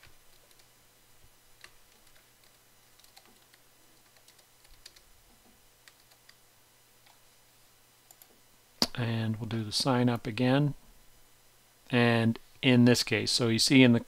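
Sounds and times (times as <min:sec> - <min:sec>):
typing on computer keyboard: 0:01.6 - 0:05.1, 0:05.9 - 0:06.4.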